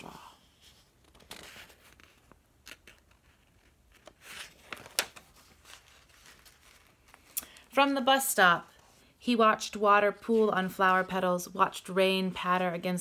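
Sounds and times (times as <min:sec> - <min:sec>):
paper rustling: 0:00.4 - 0:07.6
page flapping: 0:00.8 - 0:07.3.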